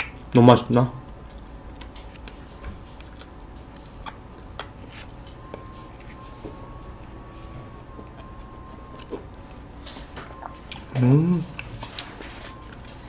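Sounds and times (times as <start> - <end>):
mouth clicks and smacks: 0.0 - 0.3, 1.0 - 6.7
quiet chewing: 1.0 - 13.0.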